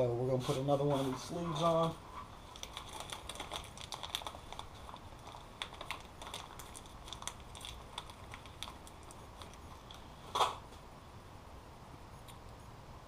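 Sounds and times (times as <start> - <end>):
plastic bag crinkling: 1.6 - 10.4.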